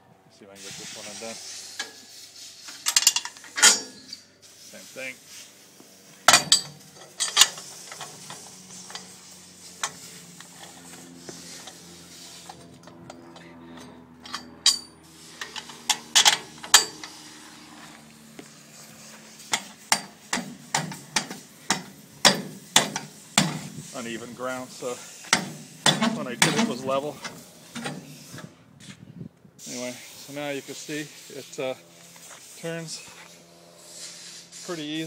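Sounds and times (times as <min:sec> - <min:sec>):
sharp metal knocks: 0:06.3 - 0:07.5, 0:19.5 - 0:23.7
metal clanking and clinking: 0:06.3 - 0:09.1.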